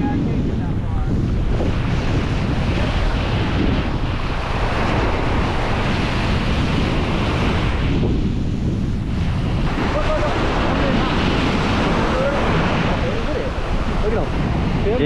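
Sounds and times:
surf washing onto sand: 0.0s - 15.0s
wind buffeting microphone: 0.0s - 15.0s.

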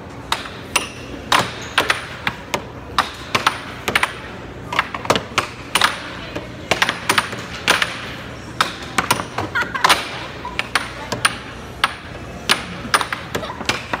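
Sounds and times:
air hockey puck clacking: 0.2s - 14.0s.

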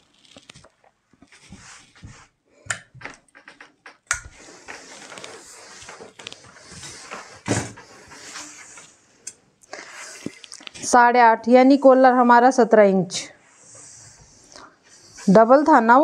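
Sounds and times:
paper and cloth rustling: 4.5s - 9.0s.

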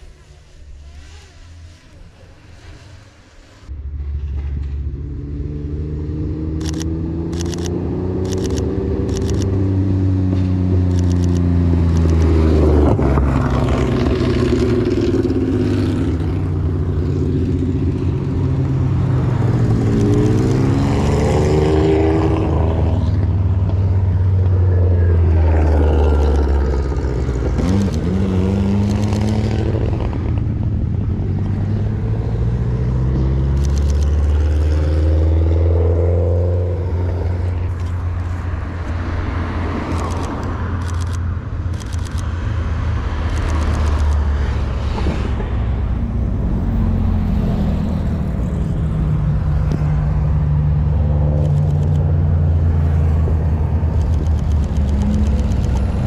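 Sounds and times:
racing cars passing: 0.0s - 56.0s
camera shutter clicks: 6.6s - 9.6s, 10.8s - 12.4s, 33.5s - 34.3s, 39.8s - 42.4s, 43.2s - 44.3s, 51.4s - 52.1s, 53.9s - 56.0s.

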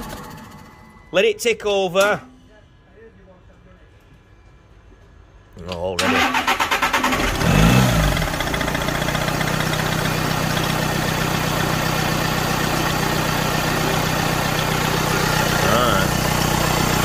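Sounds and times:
starter motor cranking: 6.0s - 8.7s
diesel engine idling: 6.1s - 17.0s.

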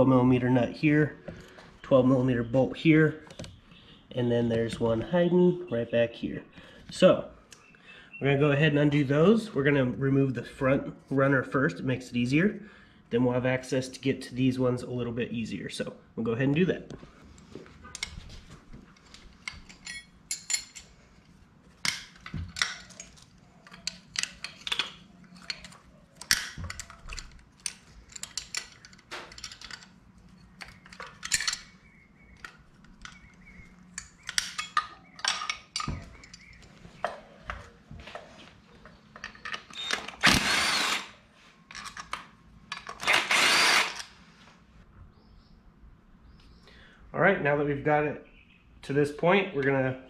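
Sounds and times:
power tool bursts: 39.8s - 41.2s, 43.0s - 44.1s.

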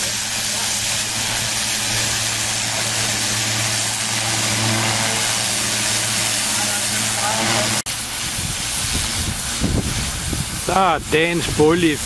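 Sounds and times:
diesel engine running: 0.0s - 8.8s
steady hiss: 0.0s - 12.0s.

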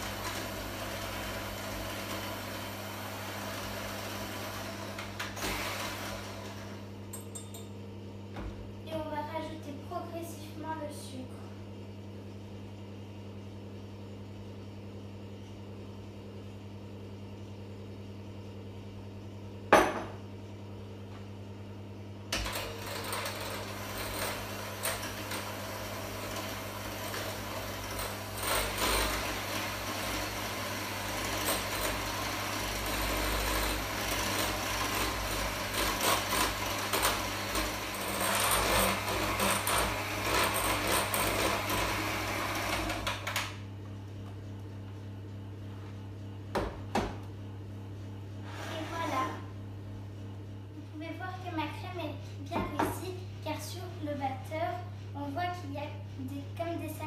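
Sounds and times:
electric hand mixer beating: 0.0s - 6.8s, 22.4s - 43.4s.

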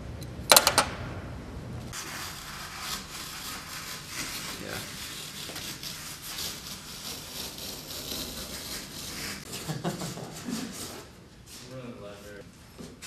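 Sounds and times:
hands and tools scraping worktable: 2.0s - 11.6s.

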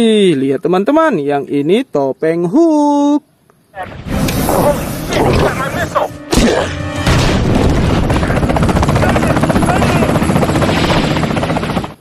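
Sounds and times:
helicopter rotor chopping: 4.4s - 12.0s.

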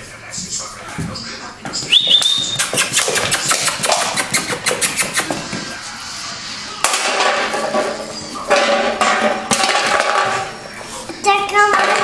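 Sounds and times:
claws on tiles: 2.4s - 5.4s.

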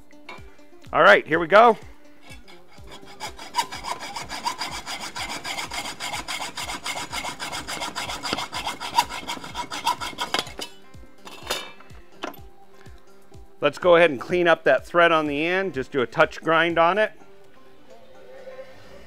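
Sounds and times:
hacksaw cutting metal rod: 2.2s - 12.4s.

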